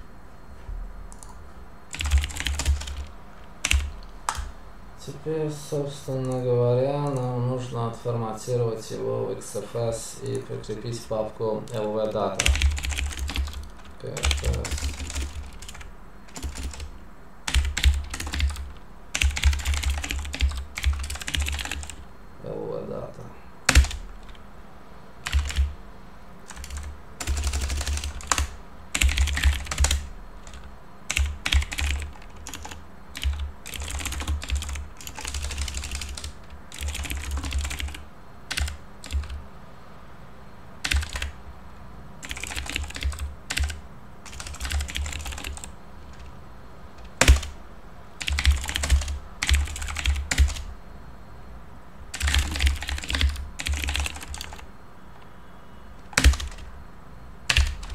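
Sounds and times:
computer keyboard typing: 1.1 - 4.5, 6.1 - 6.4, 11.6 - 22.0, 23.7 - 24.4, 25.2 - 25.8, 26.5 - 39.4, 40.8 - 41.4, 42.2 - 46.3, 47.0 - 47.6, 48.2 - 50.7, 52.1 - 54.7, 56.0 - 56.7, 57.5 - 57.9.

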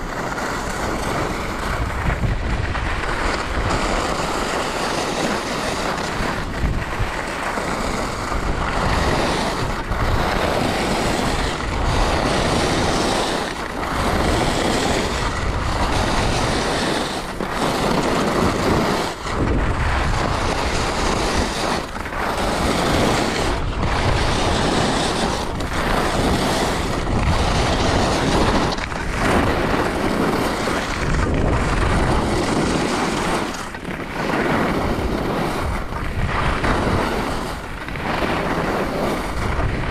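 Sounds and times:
skis scraping over snow: 0.0 - 39.9
wind buffeting microphone: 0.0 - 39.9.

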